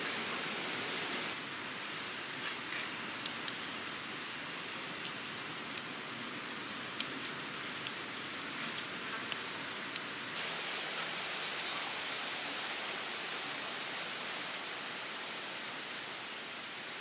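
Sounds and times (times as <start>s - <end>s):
outdoor hiss: 0.0s - 17.0s
high steady whine: 9.5s - 17.0s.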